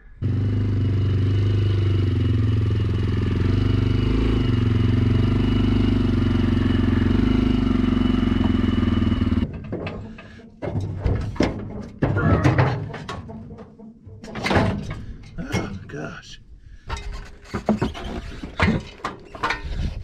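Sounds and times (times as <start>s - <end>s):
atv engine running: 0.1s - 10.4s
knocks: 9.4s - 15.9s.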